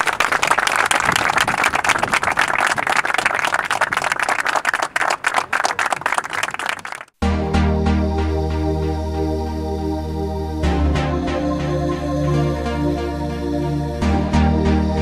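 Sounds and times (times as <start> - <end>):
group of people clapping: 0.0 - 7.2.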